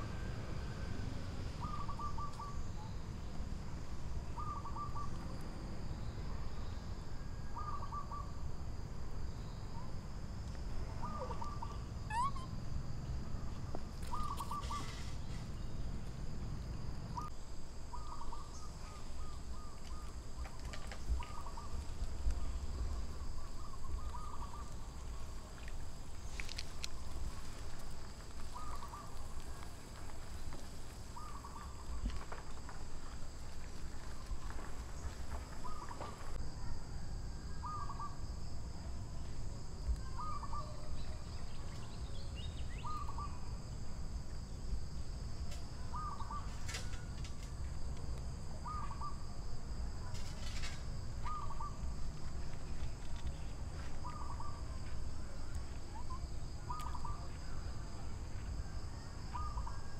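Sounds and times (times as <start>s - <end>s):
high insect drone: 0.0s - 59.9s
bird call: 1.6s - 3.0s, 4.4s - 5.2s, 11.0s - 12.6s, 14.0s - 15.5s, 28.5s - 29.6s, 35.6s - 36.4s, 40.0s - 43.5s, 45.9s - 47.1s, 48.6s - 49.2s, 51.2s - 51.8s, 54.0s - 54.8s, 55.9s - 57.6s, 59.3s - 59.9s.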